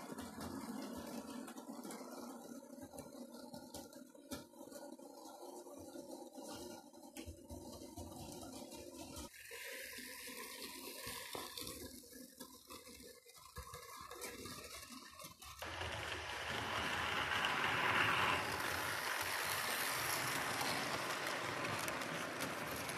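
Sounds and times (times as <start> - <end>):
model train running on track: 0.0 - 2.3, 9.0 - 12.2, 14.0 - 22.9.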